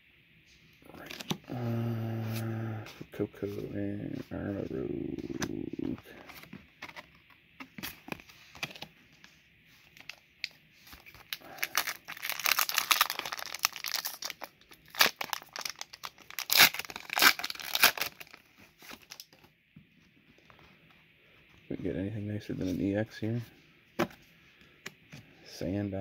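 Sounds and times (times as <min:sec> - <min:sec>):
foil wrapper crinkling and tearing: 0:11.0 - 0:19.4.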